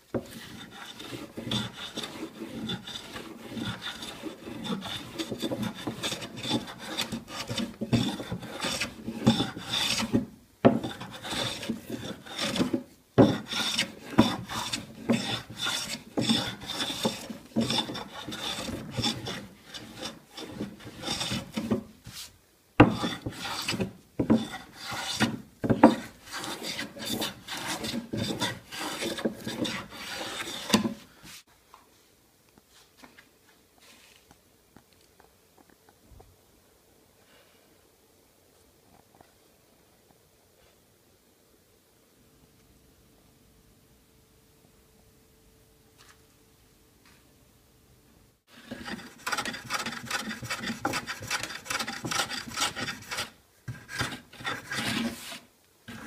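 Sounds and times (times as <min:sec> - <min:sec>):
hand plane shaving wood: 0:00.2 - 0:21.8, 0:22.9 - 0:31.0, 0:48.5 - 0:56.0.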